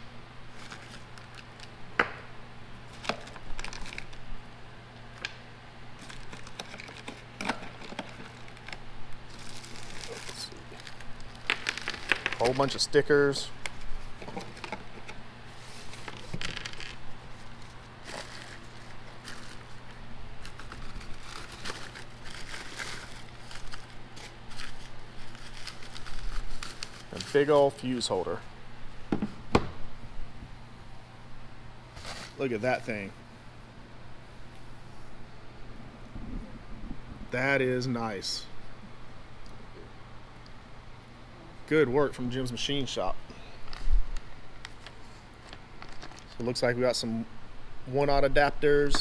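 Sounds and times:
steady low hum: 0.0s - 49.0s
plastic and bubble wrap crinkling: 0.5s - 1.7s, 2.9s - 4.2s, 6.0s - 28.0s, 31.9s - 32.5s, 44.6s - 46.4s.

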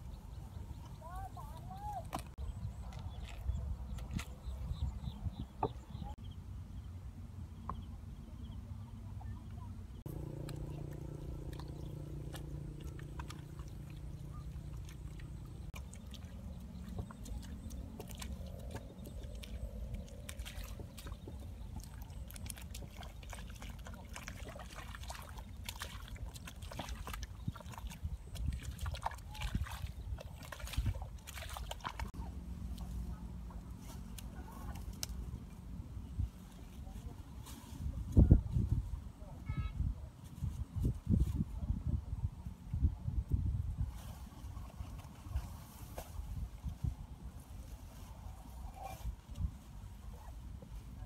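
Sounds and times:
low hum: 10.0s - 24.9s
mud squelching and sloshing: 10.1s - 35.5s.

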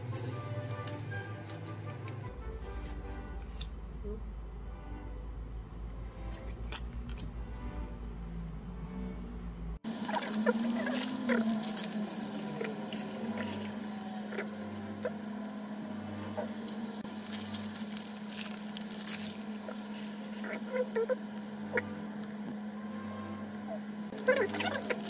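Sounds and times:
steady low hum: 0.0s - 25.0s
foil wrapper crinkling: 9.9s - 15.2s, 17.0s - 22.6s, 24.1s - 25.0s.

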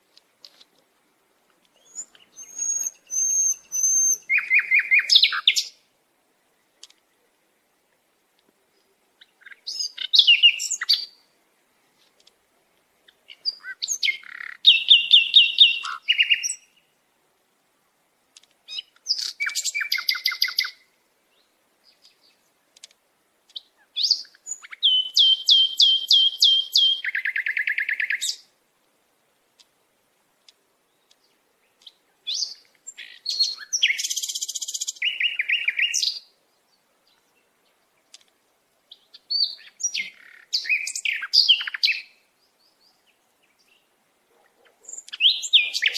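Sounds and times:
songbird singing: 0.0s - 45.9s.

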